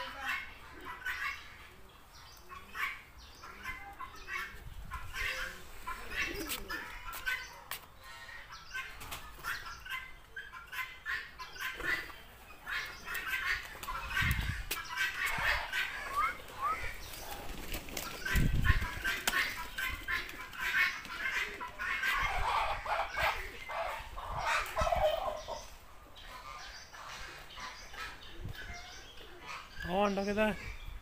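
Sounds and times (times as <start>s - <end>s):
pigeons fluttering: 12.7s - 23.6s.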